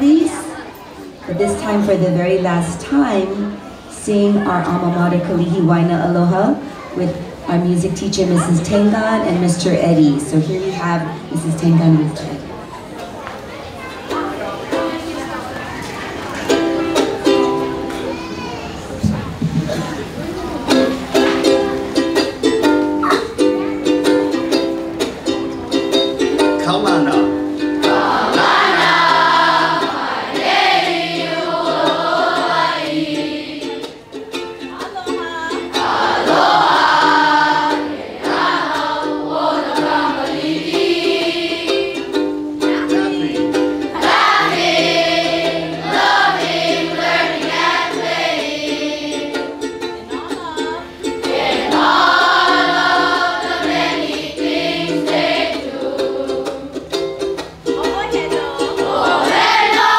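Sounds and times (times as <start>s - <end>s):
ukulele strumming: 0.0s - 59.9s
children singing: 27.6s - 34.4s, 35.1s - 59.9s.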